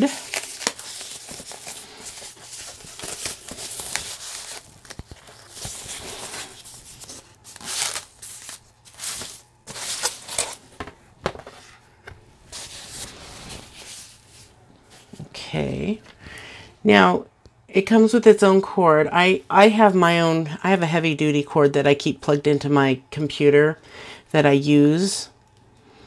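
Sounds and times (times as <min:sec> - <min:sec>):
foam packaging rustling: 0:00.0 - 0:11.8, 0:12.5 - 0:15.2.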